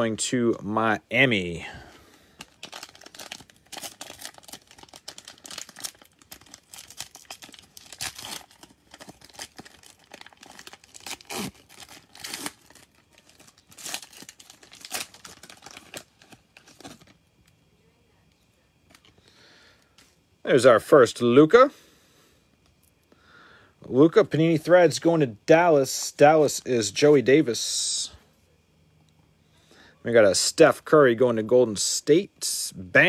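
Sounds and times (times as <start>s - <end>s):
cellophane wrapper crinkling and tearing: 2.3s - 17.4s.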